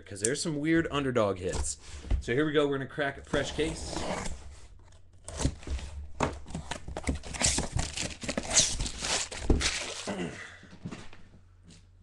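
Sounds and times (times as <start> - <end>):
cardboard flaps scraping: 3.3 - 10.0
packing paper rustling: 6.4 - 10.1
packing tape ripping: 7.1 - 10.1.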